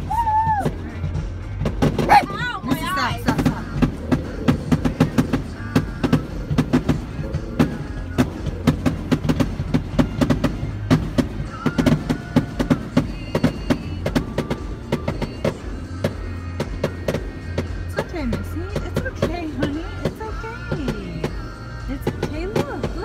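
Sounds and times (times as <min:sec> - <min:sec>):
music playing: 0:00.0 - 0:23.0
fireworks bangs and crackles: 0:01.6 - 0:23.0.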